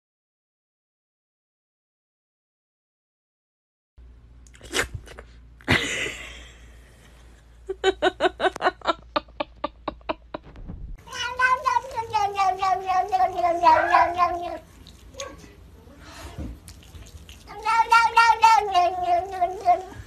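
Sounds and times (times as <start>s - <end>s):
cat chirping calls: 11.0s - 15.4s
cat meowing: 11.0s - 15.4s, 17.5s - 20.0s.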